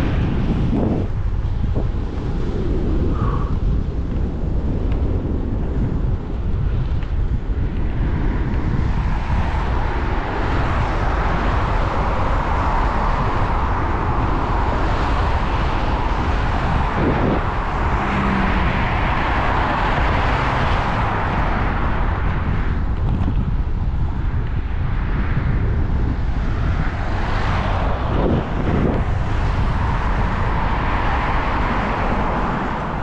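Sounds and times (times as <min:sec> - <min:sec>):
wind buffeting microphone: 0:00.0 - 0:33.0
passing road traffic hiss: 0:09.4 - 0:22.6.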